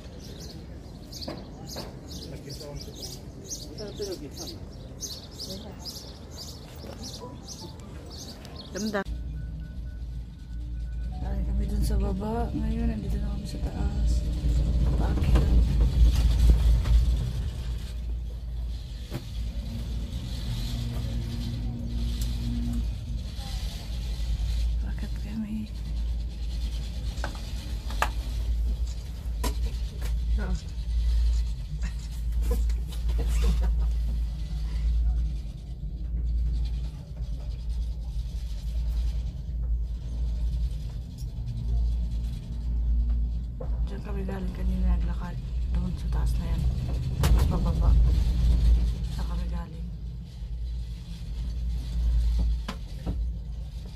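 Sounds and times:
cable car rumble: 0:00.0 - 0:53.9
wind buffeting microphone: 0:11.1 - 0:53.9.

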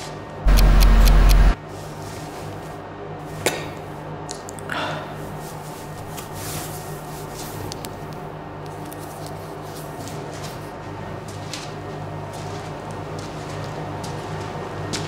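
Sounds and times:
steady low hum: 0:00.4 - 0:01.6
soft clicks: 0:00.5 - 0:01.6.

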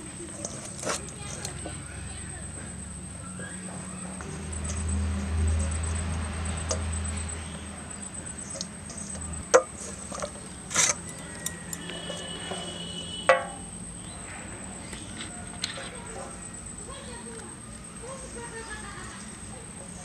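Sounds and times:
metal bowl clicks and knocks: 0:09.4 - 0:13.8.

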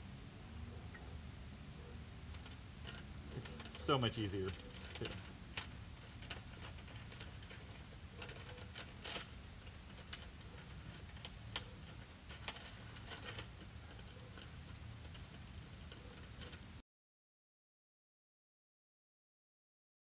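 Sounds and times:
hardware clicks and clinks: 0:00.9 - 0:01.2, 0:02.3 - 0:16.7.

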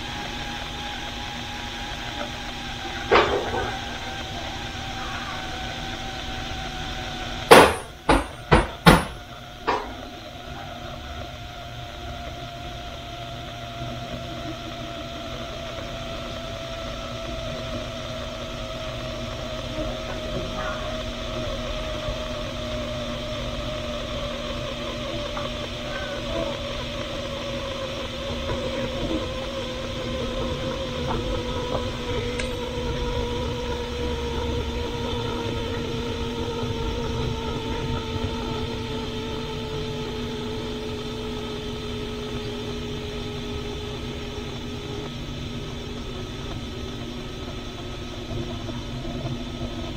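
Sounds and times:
pressure cooker steam hissing: 0:00.0 - 0:49.9
sharp knocks: 0:07.5 - 0:10.0.

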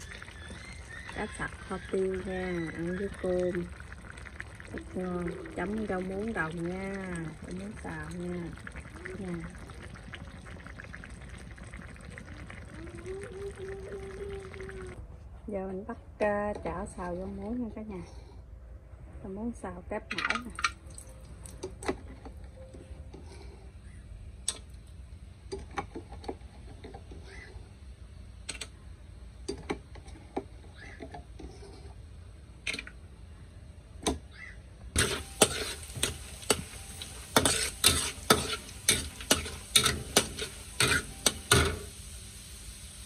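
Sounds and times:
garlic sizzling in oil: 0:00.0 - 0:15.0, 0:34.9 - 0:43.0
metal spatula scraping a wok: 0:35.0 - 0:41.9.

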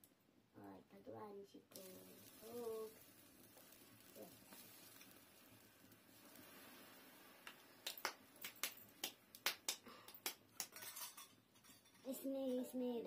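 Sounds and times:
faint steady hiss: 0:00.0 - 0:13.0
sharp clicks and snaps: 0:07.4 - 0:10.8.

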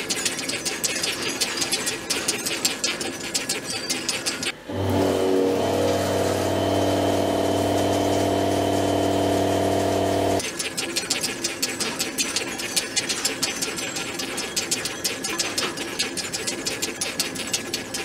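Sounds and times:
milling machine drone: 0:04.6 - 0:10.4.

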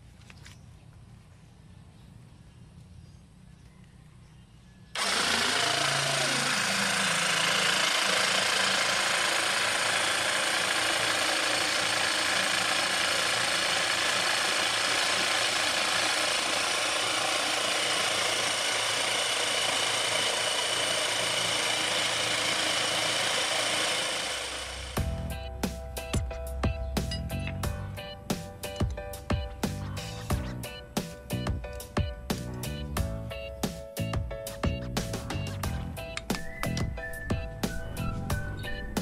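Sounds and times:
electric water pump running: 0:05.0 - 0:26.1.

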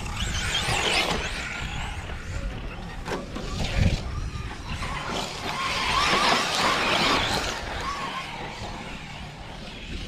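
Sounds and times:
radio-controlled cars racing: 0:00.0 - 0:10.0.

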